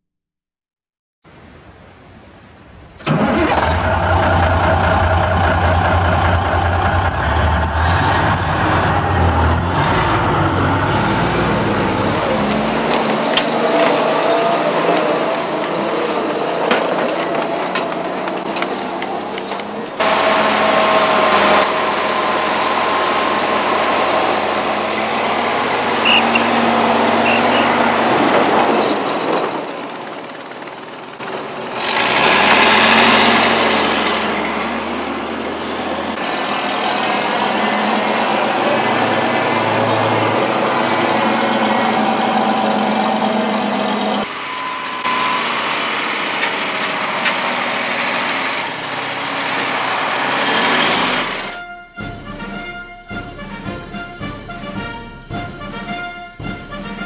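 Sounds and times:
model truck engine running: 3.0s - 44.6s.

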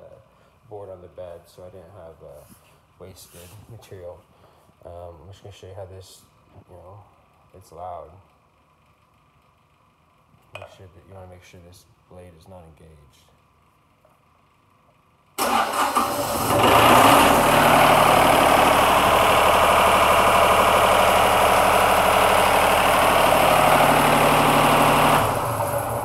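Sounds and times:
diesel engine starting and running: 15.4s - 26.0s.

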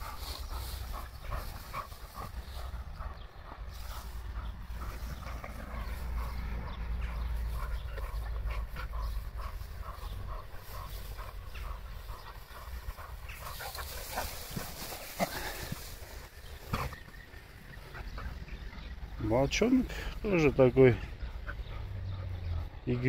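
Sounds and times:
high rustling hiss: 8.8s - 17.8s.

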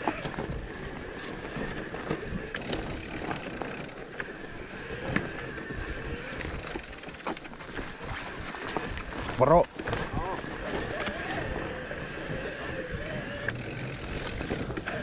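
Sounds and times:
bike rattles and knocks: 0.0s - 15.0s
bike tyre noise on trail: 0.0s - 15.0s.

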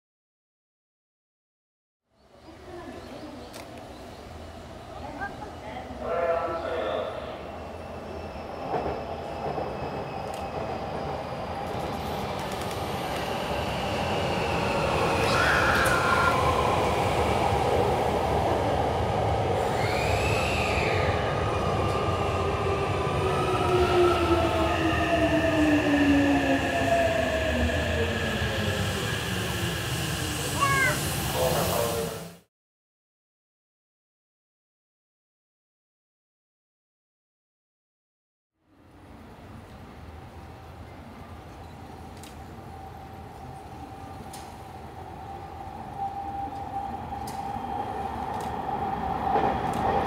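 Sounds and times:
electric train rolling: 8.1s - 32.5s.

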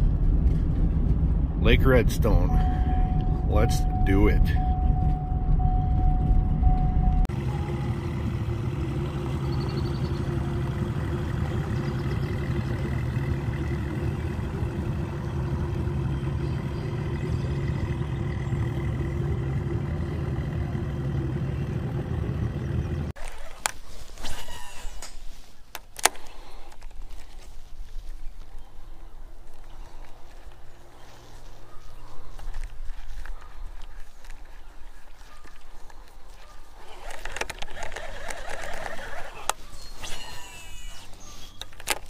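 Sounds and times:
outboard motor running: 7.3s - 23.1s.

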